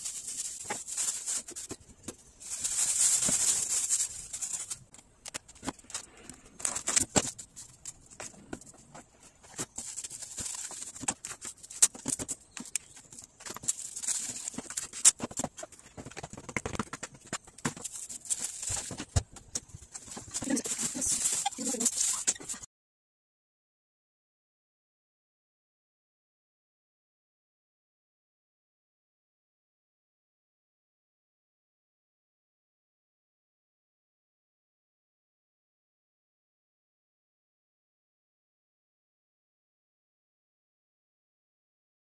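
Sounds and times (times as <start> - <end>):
plastic wrap crinkling: 0.0 - 22.7.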